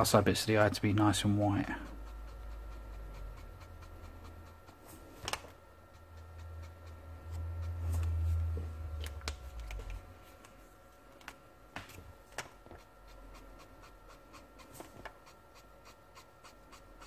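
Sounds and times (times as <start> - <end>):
marker scratching on paper: 12.6 - 17.0.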